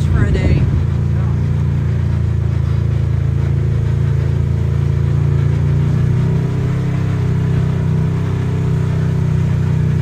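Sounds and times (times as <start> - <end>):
utility vehicle engine running: 0.0 - 10.0.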